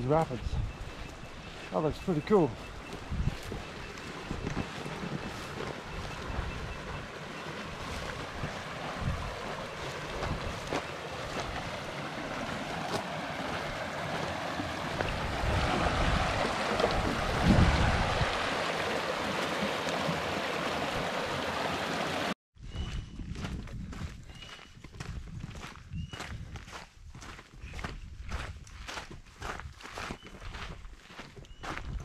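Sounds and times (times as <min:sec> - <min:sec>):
wind buffeting microphone: 0:00.0 - 0:01.6, 0:02.2 - 0:11.9, 0:14.8 - 0:18.6, 0:22.6 - 0:30.8, 0:31.5 - 0:32.0
footsteps on dirt: 0:00.0 - 0:20.6, 0:22.7 - 0:32.0
water rushing over rocks: 0:03.8 - 0:22.4.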